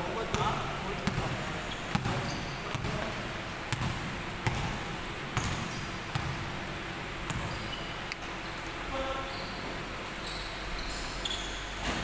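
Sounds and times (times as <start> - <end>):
basketball bouncing on wooden floor: 0.3 - 3.1, 3.7 - 6.4, 7.3 - 7.7.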